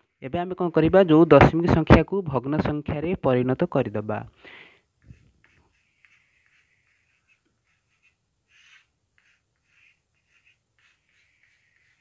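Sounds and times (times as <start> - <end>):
chalk scratching on blackboard: 5.0 - 12.0.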